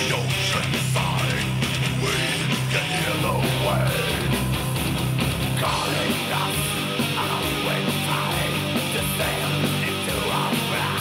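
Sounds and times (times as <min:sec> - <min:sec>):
growled vocals: 0:00.0 - 0:04.4
distorted electric guitars: 0:00.0 - 0:11.0
heavy metal song over speakers: 0:00.0 - 0:11.0.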